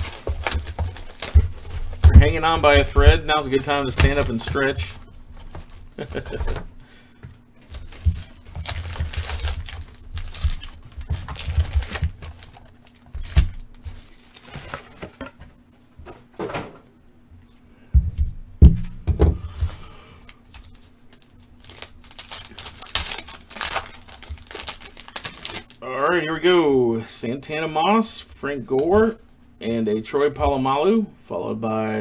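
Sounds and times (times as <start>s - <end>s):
foil wrappers crinkling: 0.0s - 6.6s, 7.6s - 15.3s, 20.2s - 25.9s
packs thumping on table: 0.0s - 15.4s, 21.6s - 25.8s.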